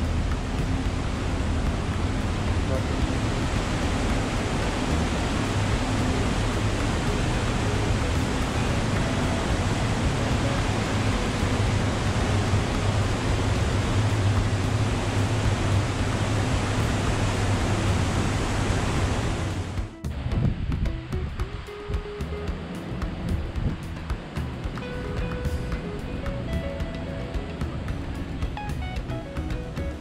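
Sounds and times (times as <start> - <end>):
low rumble: 0.0 - 21.4
wind and sea rushing: 0.0 - 30.0.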